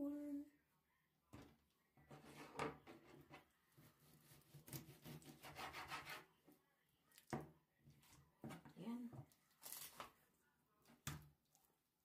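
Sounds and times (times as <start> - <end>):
knife sawing on cutting board: 4.0 - 6.3.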